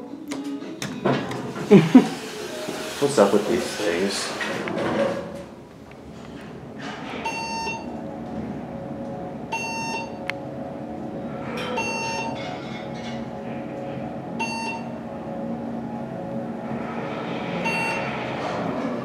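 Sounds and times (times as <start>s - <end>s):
elevator car humming: 0.0s - 19.0s
elevator floor-passing beep: 6.0s - 19.0s.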